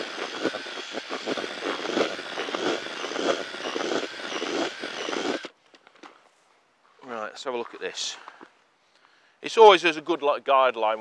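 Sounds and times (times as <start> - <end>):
whisk churning and scraping groundbait: 0.0 - 5.5
cordless drill motor running: 0.0 - 5.6.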